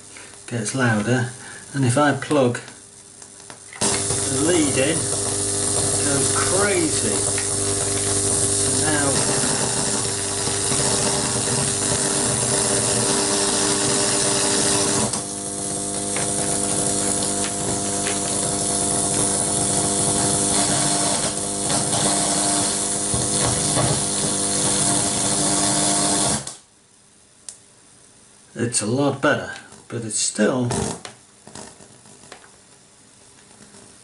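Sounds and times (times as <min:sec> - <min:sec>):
amplifier hissing buzz: 0:00.0 - 0:34.0
pops and crackles: 0:02.3 - 0:08.6.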